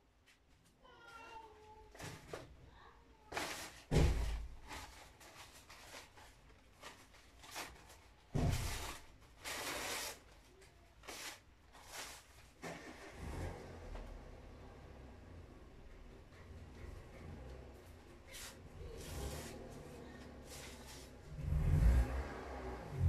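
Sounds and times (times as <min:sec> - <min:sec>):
stiff paper rustling: 0:03.3 - 0:12.7.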